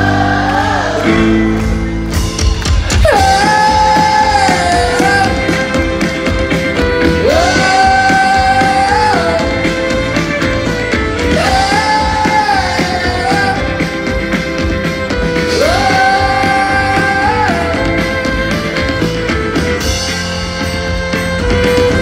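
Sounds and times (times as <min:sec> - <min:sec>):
live folk-rock band playing: 0:00.0 - 0:22.0
person singing long held notes: 0:02.9 - 0:19.1.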